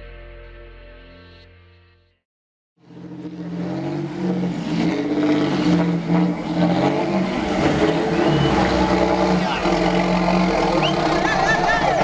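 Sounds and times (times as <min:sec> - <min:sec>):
coach bus engine revving: 0:02.8 - 0:12.0.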